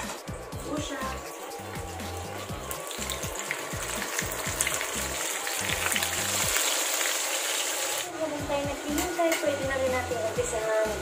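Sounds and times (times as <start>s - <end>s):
fish sizzling in hot oil: 1.0s - 8.1s.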